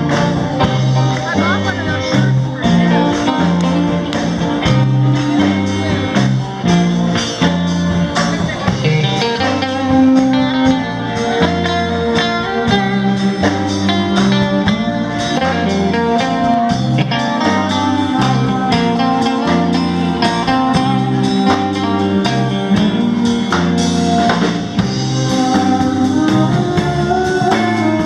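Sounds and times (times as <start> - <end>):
bass guitar: 0.0 - 28.0
drums keeping a steady beat: 0.0 - 28.0
electric guitar: 0.0 - 28.0.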